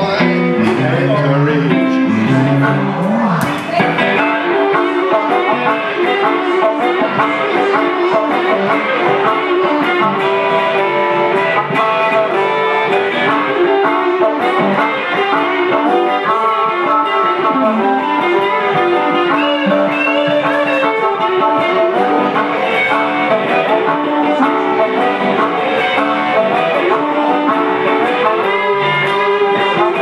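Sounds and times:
electric guitar blues: 0.0 - 30.0
harmonica playing: 0.0 - 30.0.

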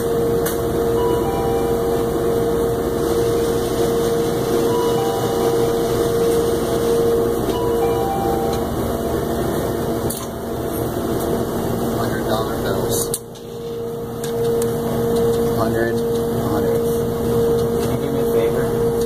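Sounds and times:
hum-like tone: 0.0 - 9.3
cash machine whirring: 0.7 - 10.1
short beeps: 1.0 - 2.6, 4.6 - 8.8.

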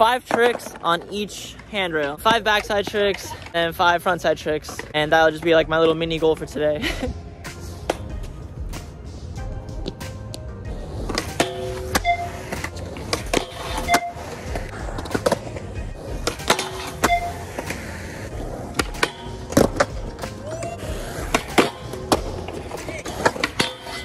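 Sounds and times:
skateboard wheels on concrete: 0.0 - 6.8, 7.5 - 24.0
background music: 0.7 - 24.0
skateboard clacks: 11.0 - 24.0.

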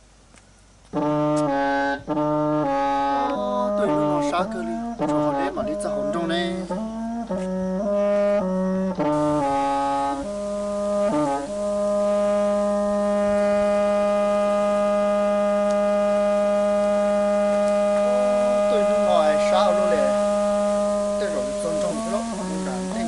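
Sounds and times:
brass-like wind instrument: 0.9 - 23.0
man's voice: 3.3 - 6.8, 18.6 - 20.2, 21.2 - 23.0.

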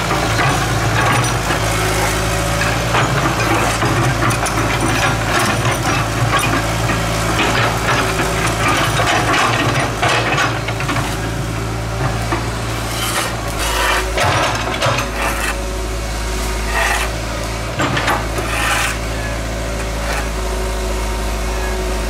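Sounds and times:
diesel engine running: 0.0 - 22.0
clatter of knocks and scrapes: 2.6 - 11.3, 12.0 - 15.6, 16.7 - 17.2, 17.8 - 19.0, 19.8 - 20.4.

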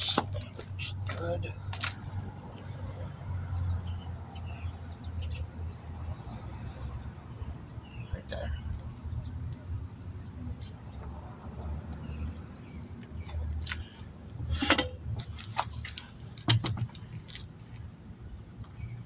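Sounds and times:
tire knocking and scraping: 0.0 - 2.6, 12.2 - 18.0.

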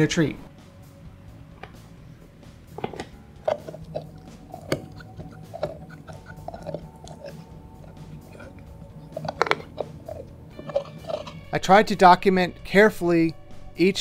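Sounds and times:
dog teeth crunching a chew: 2.8 - 11.4.

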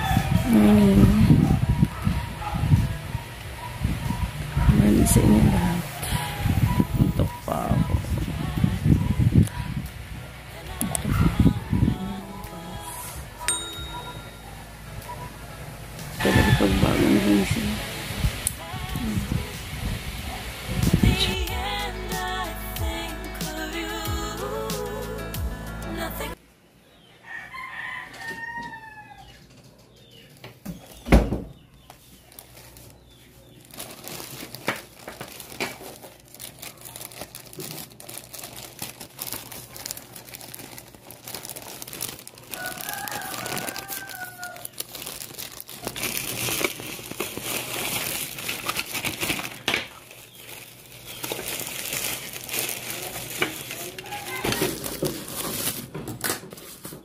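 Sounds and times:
plastic bag and bubble wrap crinkling: 10.7 - 14.6, 16.0 - 19.5, 31.8 - 57.0.

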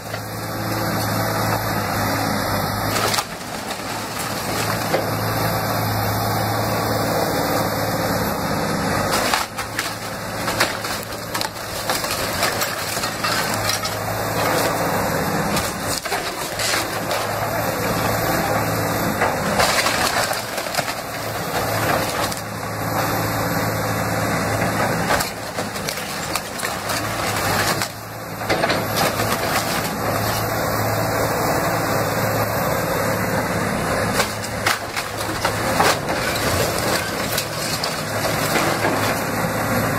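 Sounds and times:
timber cracking and splintering: 0.0 - 6.6, 8.9 - 23.4, 24.4 - 31.3, 33.9 - 39.9
excavator diesel engine running: 0.0 - 39.9
debris crashing down: 2.8 - 5.6, 9.0 - 22.9, 24.4 - 31.1, 34.0 - 39.9.

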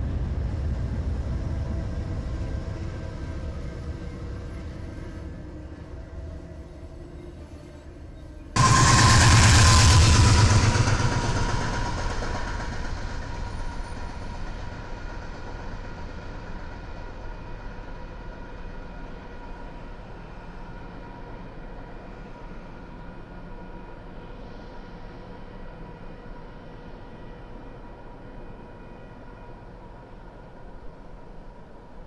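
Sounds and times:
diesel locomotive engine pulsing: 8.6 - 32.0.

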